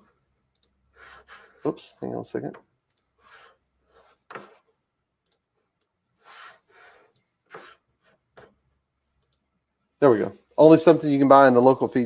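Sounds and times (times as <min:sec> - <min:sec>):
faint rustling and rubbing: 0:03.2 - 0:04.8, 0:06.2 - 0:08.7.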